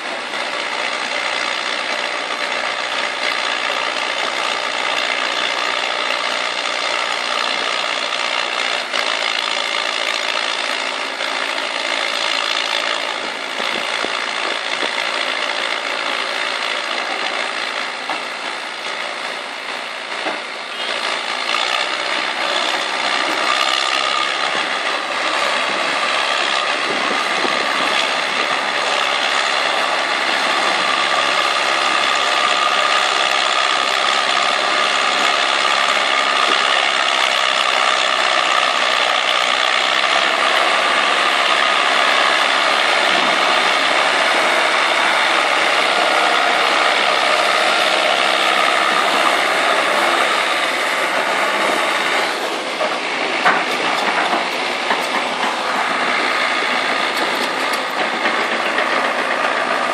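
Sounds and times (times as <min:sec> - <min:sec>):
tractor diesel engine under load: 0:00.0 - 0:59.9
mechanical rattling: 0:49.8 - 0:59.9.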